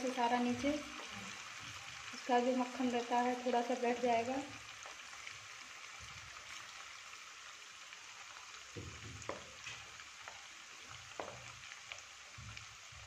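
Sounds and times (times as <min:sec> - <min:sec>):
butter sizzling with pops: 0:00.0 - 0:13.0
wooden spatula knocking pan: 0:08.8 - 0:09.9, 0:11.1 - 0:11.5.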